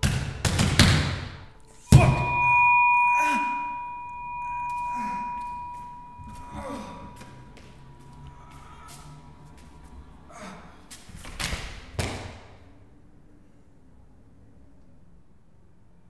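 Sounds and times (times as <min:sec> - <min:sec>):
high-pitched ringing tone: 0:01.5 - 0:10.3
loud hit: 0:01.9 - 0:07.2.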